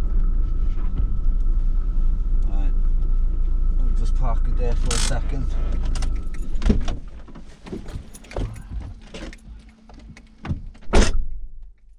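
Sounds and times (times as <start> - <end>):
car door opening: 4.8 - 11.2
keys jangling: 5.9 - 6.6, 7.8 - 10.3.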